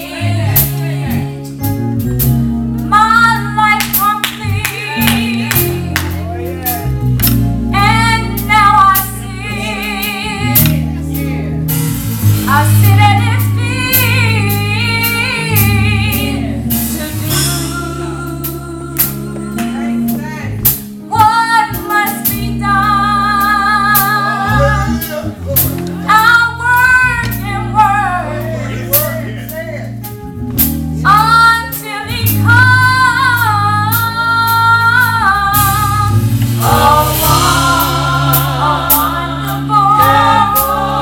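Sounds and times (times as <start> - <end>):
female vocal group singing: 0.0 - 1.4, 31.2 - 41.0
instrumental backing with beat: 0.0 - 41.0.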